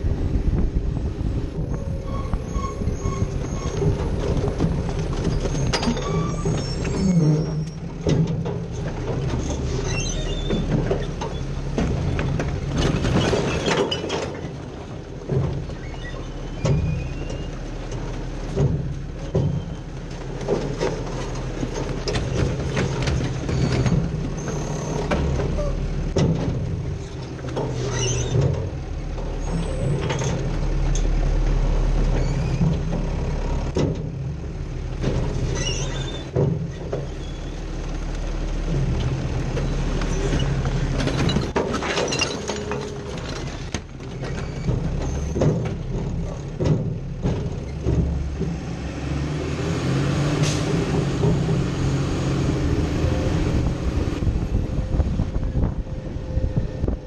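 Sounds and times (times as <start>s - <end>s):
sharp clanks and rattles: 1.5s - 57.0s
brief high squeaks: 1.7s - 4.0s, 5.3s - 7.8s
truck engine running: 14.4s - 41.7s, 42.4s - 57.0s.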